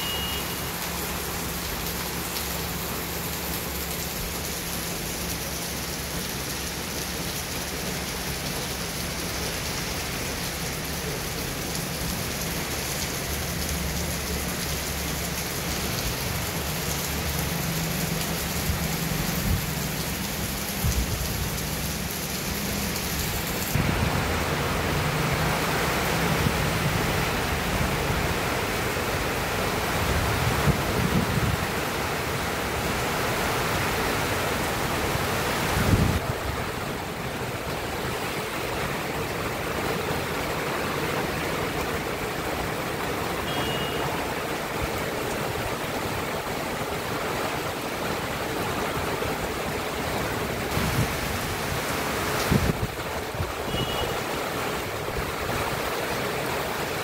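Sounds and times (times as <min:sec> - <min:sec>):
heavy rain hissing: 0:00.0 - 0:57.0.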